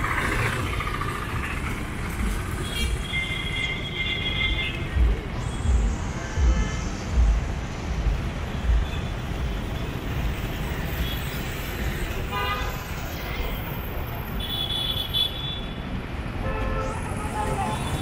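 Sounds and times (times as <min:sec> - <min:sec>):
road traffic noise: 0:00.0 - 0:18.0
vehicle horns honking: 0:12.3 - 0:12.9.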